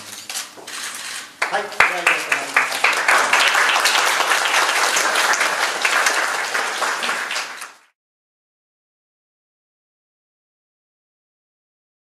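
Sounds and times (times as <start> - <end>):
crowd applauding: 1.4 - 8.0.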